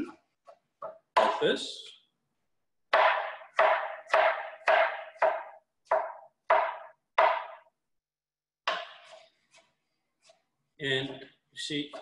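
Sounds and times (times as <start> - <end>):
knife chopping on wooden board: 0.4 - 1.6, 2.9 - 7.7, 8.6 - 10.4.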